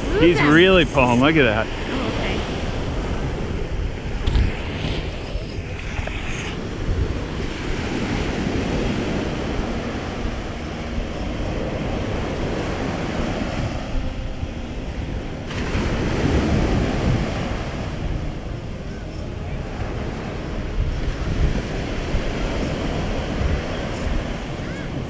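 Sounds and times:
small waves breaking on beach: 0.0s - 25.0s
wind buffeting microphone: 0.0s - 25.0s.

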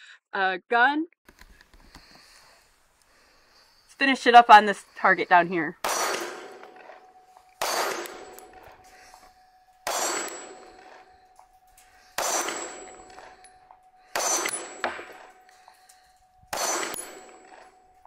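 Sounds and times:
pistol shots: 5.8s - 8.8s, 9.8s - 11.2s, 12.1s - 13.4s, 14.1s - 15.4s, 16.5s - 17.8s.

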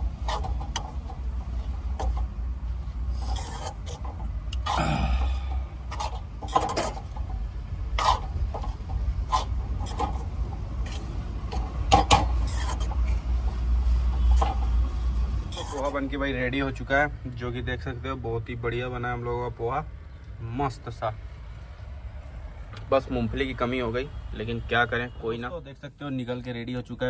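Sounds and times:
metal spatula scraping pan: 7.9s - 11.7s, 12.3s - 13.2s, 15.5s - 16.0s.

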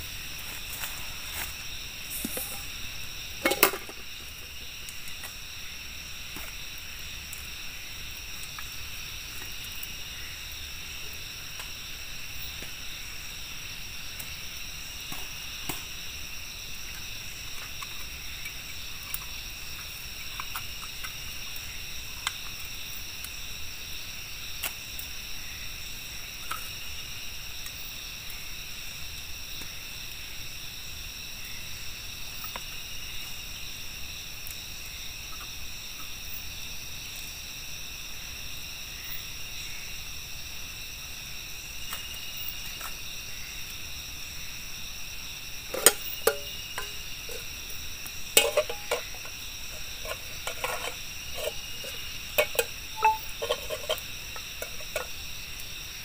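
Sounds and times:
insect chorus shrilling: 0.0s - 23.2s, 38.0s - 56.0s.

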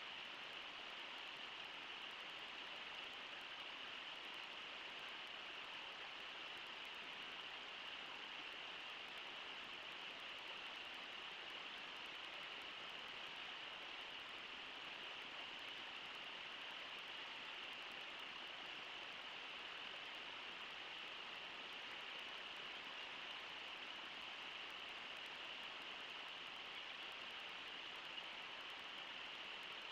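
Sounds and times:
river water running over riffles: 0.1s - 29.9s.

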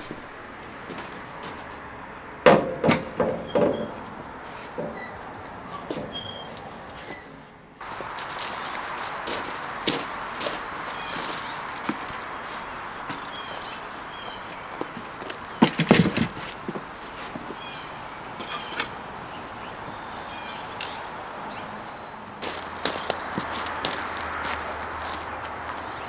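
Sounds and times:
knocks and thumps: 2.4s - 4.0s, 14.8s - 16.9s
birds chirping: 7.8s - 26.0s.

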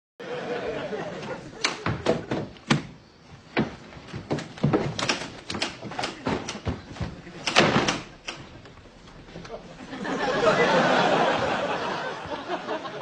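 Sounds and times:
door being worked: 1.2s - 3.0s, 3.6s - 9.6s
knocks and thuds: 1.7s - 8.6s.

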